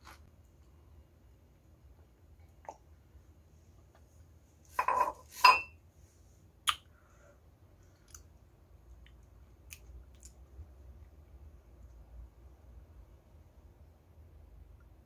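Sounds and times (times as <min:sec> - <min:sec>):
ceramic mug clinking down: 0:04.8 - 0:05.7.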